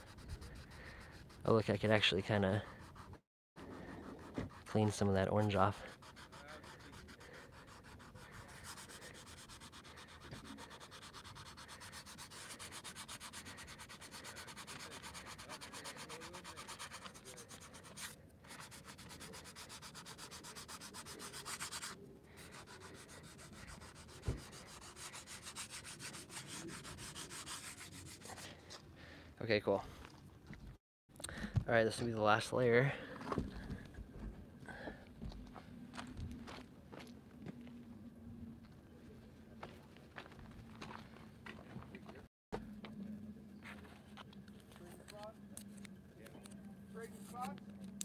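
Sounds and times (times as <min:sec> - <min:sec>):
fingers rubbing canvas: 0:02.6 - 0:28.4.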